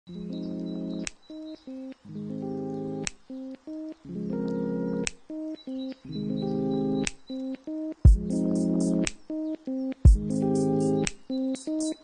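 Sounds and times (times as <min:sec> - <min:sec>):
background music chords: 0:00.1 - 0:12.0.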